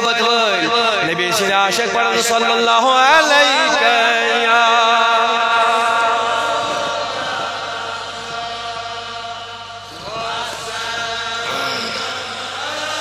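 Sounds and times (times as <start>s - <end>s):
devotional chanting through microphone: 0.0s - 13.0s.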